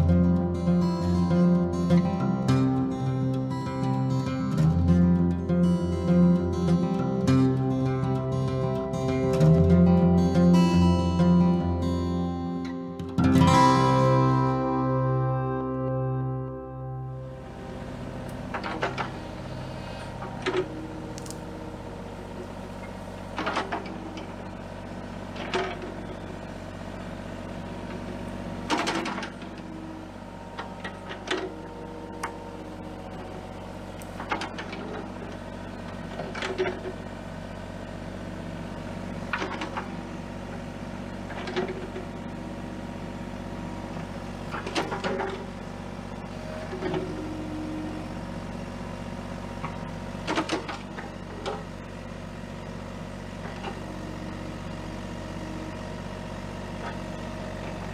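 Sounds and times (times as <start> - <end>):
diesel excavator engine running: 0.0 - 57.9
excavator bucket clanking: 18.3 - 37.1, 39.0 - 55.9.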